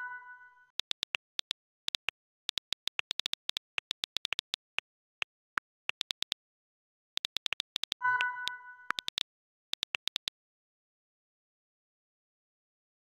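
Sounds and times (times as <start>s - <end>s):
phone keyboard clicks: 0.8s - 4.8s, 5.9s - 6.4s, 7.2s - 8.3s, 8.9s - 10.3s.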